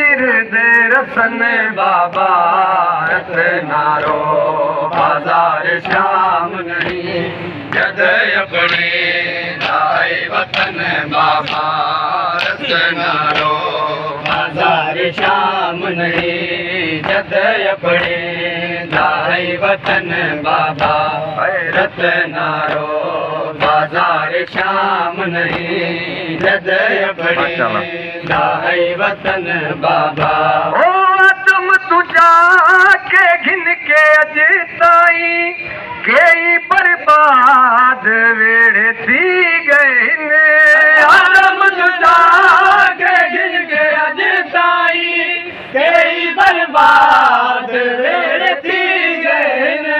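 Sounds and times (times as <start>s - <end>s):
man singing through a microphone: 0.0s - 49.9s
men chanting a lament: 0.0s - 49.9s
hands slapping on chests: 3.0s - 4.3s, 4.9s - 24.8s, 25.4s - 26.6s.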